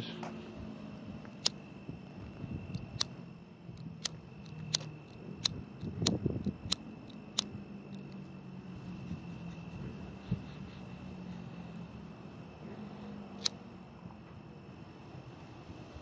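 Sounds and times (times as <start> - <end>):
low hum: 0.0 - 16.0
sharp short clicks: 1.4 - 1.6, 2.7 - 8.3, 13.3 - 13.6.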